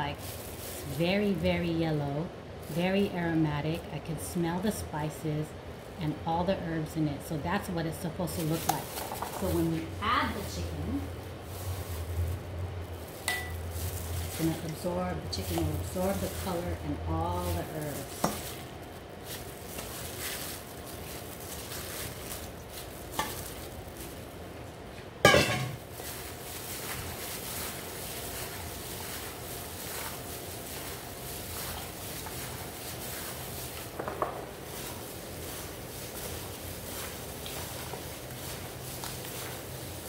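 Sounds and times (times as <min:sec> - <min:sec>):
chicken stirred in marinade: 0:00.0 - 0:01.4, 0:10.4 - 0:24.4, 0:25.2 - 0:40.0.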